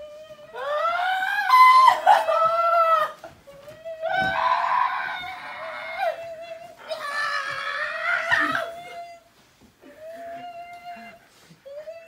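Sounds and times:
people wailing: 0.6 - 9.0.

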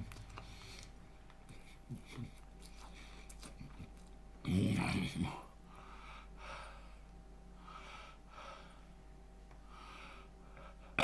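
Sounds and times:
man breathing heavily: 5.6 - 9.0, 9.6 - 11.0.

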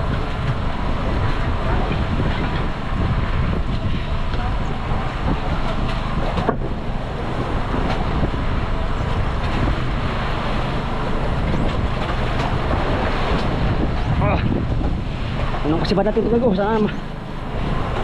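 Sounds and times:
boat engine droning: 0.0 - 18.0
wind on microphone: 0.0 - 18.0.

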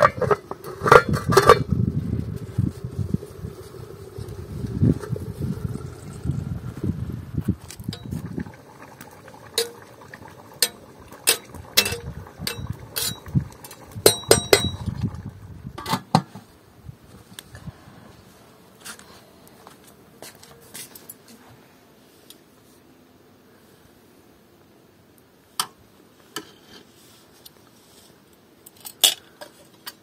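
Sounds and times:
metal pot and lid clanking: 0.0 - 1.7, 7.9 - 16.3
wind rumble on microphone: 0.0 - 8.6, 11.5 - 15.9, 16.8 - 18.0.

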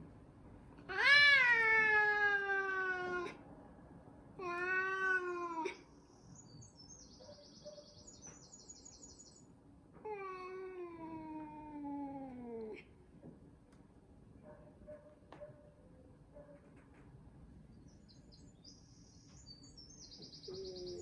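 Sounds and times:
cat growling yowls: 0.9 - 3.4, 4.4 - 5.8, 10.1 - 12.9.

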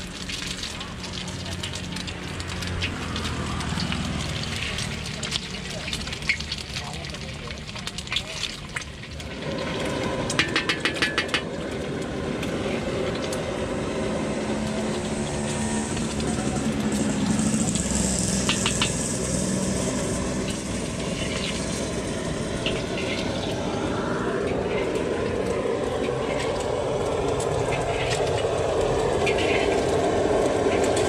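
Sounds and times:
egg sizzling in a wok: 0.0 - 31.0
burner rumble: 8.7 - 31.0.

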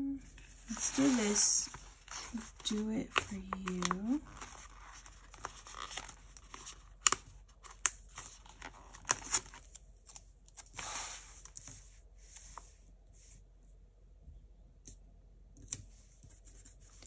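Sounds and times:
paper rustle: 0.4 - 12.7.

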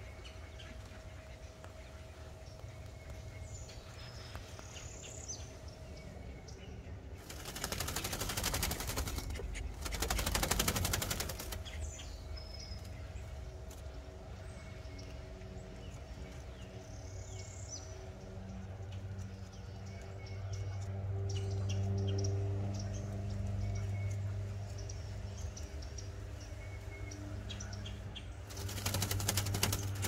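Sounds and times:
duck flapping wings: 7.2 - 11.8, 28.5 - 30.0.

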